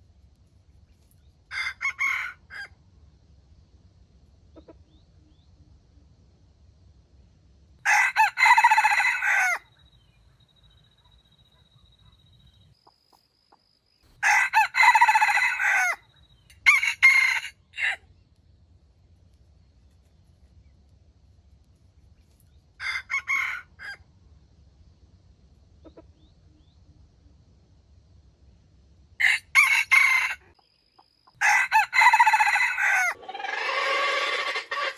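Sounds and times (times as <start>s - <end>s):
rooster crowing: 1.5s - 2.7s, 7.8s - 9.7s, 14.2s - 18.0s, 22.8s - 24.0s, 29.2s - 30.6s, 31.4s - 34.9s.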